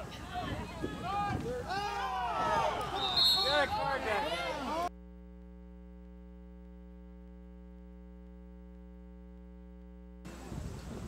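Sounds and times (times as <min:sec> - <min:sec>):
voices: 0:00.0 - 0:04.9
outdoor noise: 0:00.0 - 0:11.0
electrical hum: 0:04.5 - 0:11.0.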